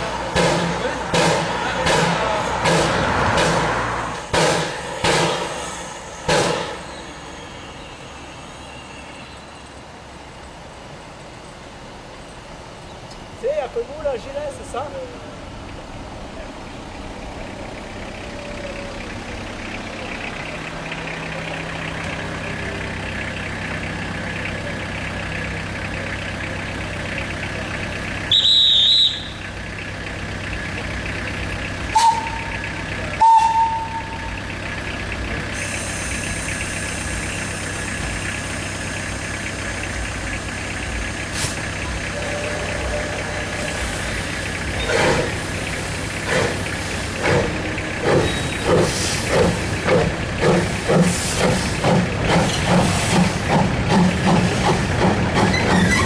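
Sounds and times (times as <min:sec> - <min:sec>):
locomotive exhaust chuffs: 0:00.0 - 0:56.0
locomotive whistle blast: 0:28.2 - 0:29.5, 0:31.9 - 0:34.4
steam hissing: 0:35.5 - 0:39.9, 0:43.5 - 0:56.0.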